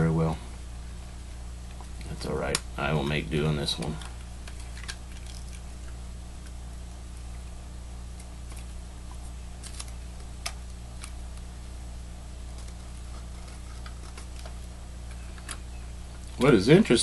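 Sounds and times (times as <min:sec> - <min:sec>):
steady low hum: 0:00.0 - 0:17.0
tape clicks and crackles: 0:01.6 - 0:02.8, 0:03.5 - 0:11.6, 0:12.4 - 0:16.6.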